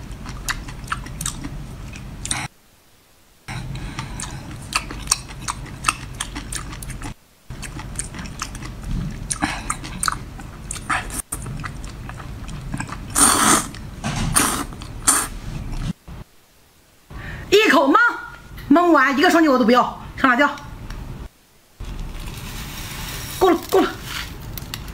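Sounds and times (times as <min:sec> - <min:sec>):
wet chewing with lip smacks: 0:03.8 - 0:13.9.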